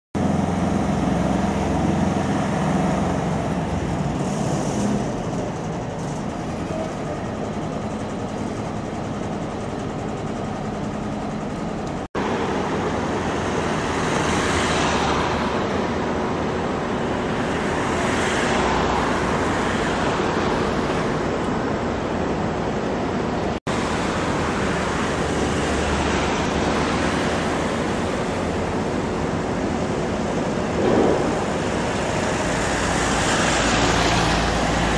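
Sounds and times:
cars passing: 0:00.2 - 0:07.2, 0:12.1 - 0:34.9
steady traffic rumble: 0:00.2 - 0:34.9.

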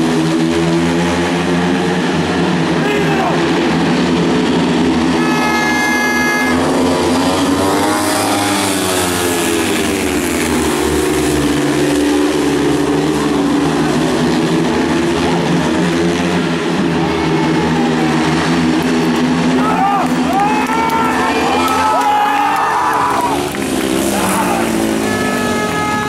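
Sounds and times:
motorbike engines revving: 0:00.0 - 0:26.0
high steady tone: 0:05.2 - 0:06.7.

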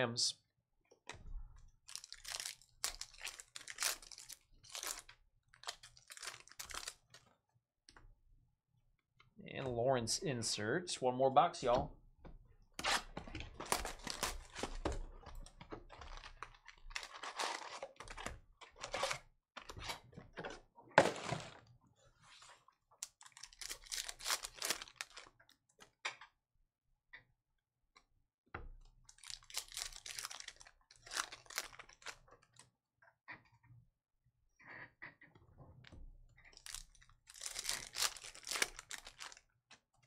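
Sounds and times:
foil card packs crinkling: 0:01.9 - 0:07.2, 0:13.6 - 0:15.0, 0:15.9 - 0:19.1, 0:23.2 - 0:25.3, 0:29.1 - 0:32.2, 0:36.6 - 0:39.4.

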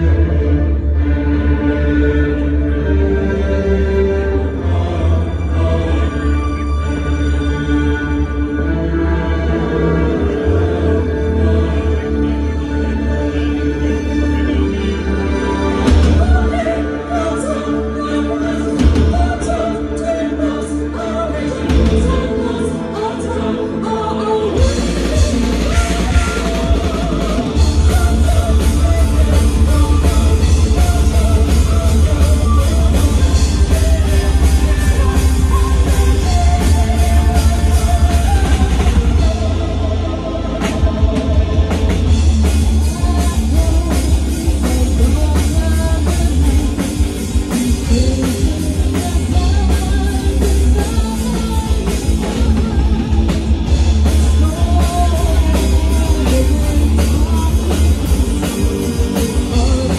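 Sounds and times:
metal band playing: 0:09.8 - 0:59.9
woman singing: 0:15.5 - 0:59.9.

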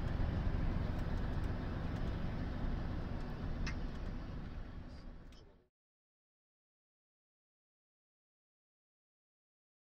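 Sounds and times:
truck engine and road rumble: 0:00.0 - 0:05.7.

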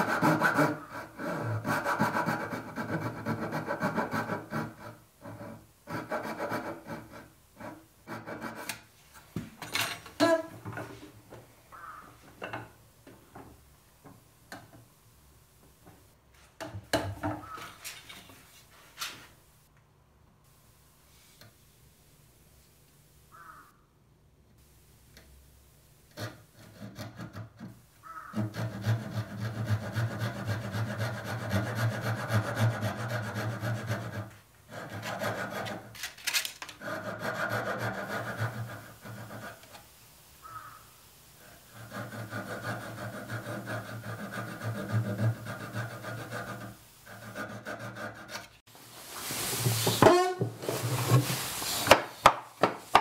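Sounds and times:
hand saw strokes on wood: 0:00.0 - 0:08.8, 0:28.3 - 0:36.0, 0:36.8 - 0:39.7, 0:41.6 - 0:48.6, 0:49.3 - 0:52.2.

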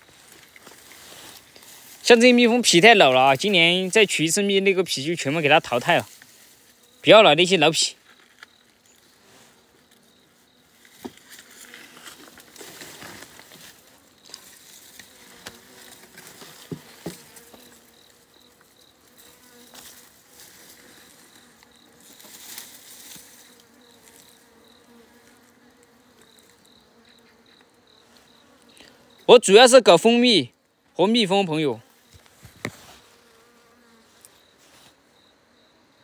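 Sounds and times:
rustling: 0:00.0 - 0:02.4, 0:10.7 - 0:26.8, 0:32.1 - 0:35.0
bees buzzing: 0:09.2 - 0:29.3.

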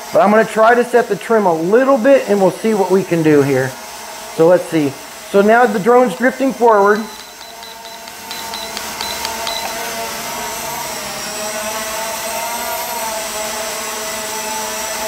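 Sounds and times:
short high beeps: 0:07.0 - 0:09.9.

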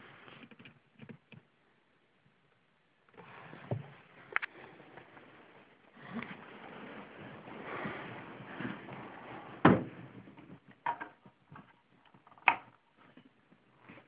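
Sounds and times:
rustling: 0:03.1 - 0:12.3.

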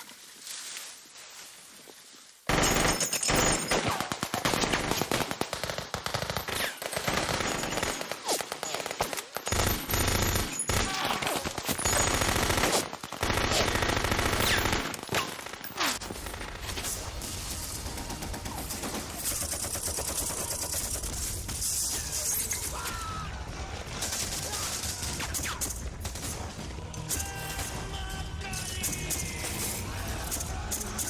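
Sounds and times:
machine-gun fire: 0:02.5 - 0:21.6.

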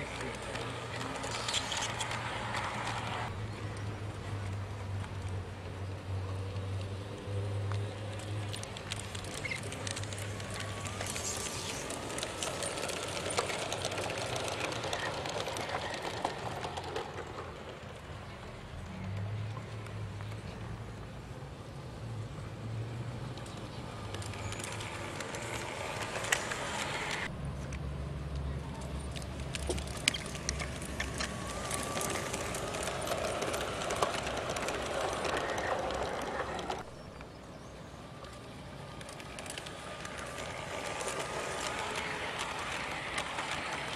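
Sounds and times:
model train running noise: 0:00.0 - 0:03.3, 0:07.9 - 0:19.1, 0:23.3 - 0:27.3, 0:28.7 - 0:37.1, 0:38.1 - 0:43.9
model train wheels clicking: 0:00.0 - 0:05.4, 0:06.4 - 0:20.4, 0:22.9 - 0:37.3, 0:38.1 - 0:43.9.

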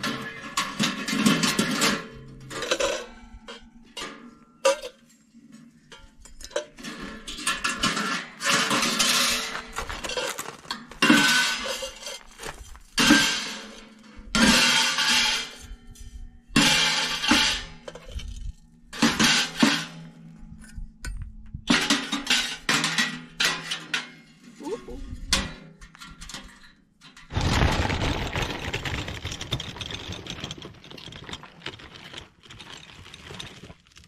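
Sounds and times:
metal parts clinking and scraping: 0:00.0 - 0:03.4, 0:05.9 - 0:13.6.

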